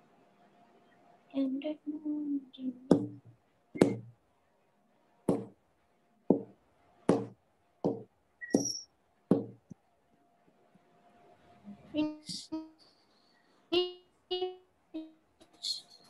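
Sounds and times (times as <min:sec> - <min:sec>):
sharp knocks: 0:02.9 - 0:04.1, 0:05.3 - 0:05.6, 0:06.3 - 0:09.7.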